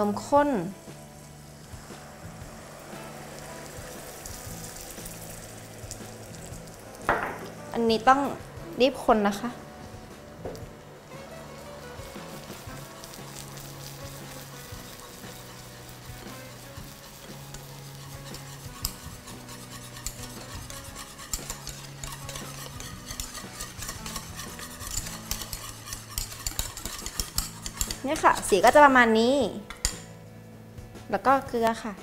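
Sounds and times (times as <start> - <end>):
caramel bubbling and sizzling: 0.0 - 30.1
whisk tapping against pot: 12.0 - 28.8.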